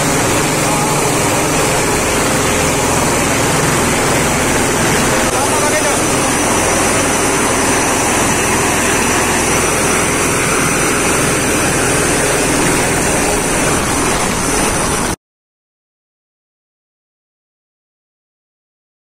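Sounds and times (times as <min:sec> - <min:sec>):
heavy surf breaking on rocks: 0:00.0 - 0:15.2.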